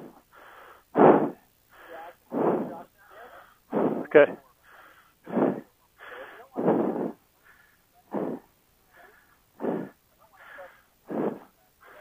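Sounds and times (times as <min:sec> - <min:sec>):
person panting heavily: 0:00.0 - 0:12.0.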